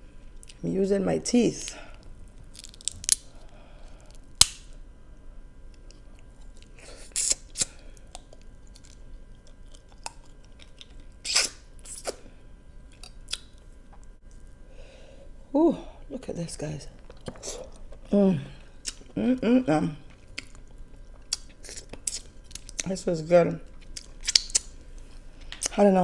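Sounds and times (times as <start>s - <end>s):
crab shells cracking: 2.3s - 4.8s, 7.4s - 11.6s, 20.0s - 22.9s, 23.7s - 24.8s
quiet chewing: 5.8s - 12.2s, 12.8s - 14.6s, 16.9s - 19.2s, 20.0s - 22.9s.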